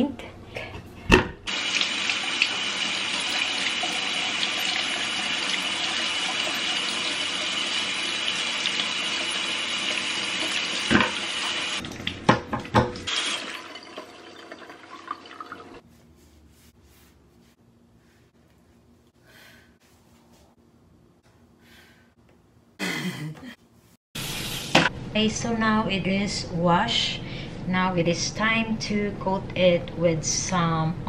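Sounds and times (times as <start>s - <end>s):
potatoes being scrubbed: 15.8s - 17.6s.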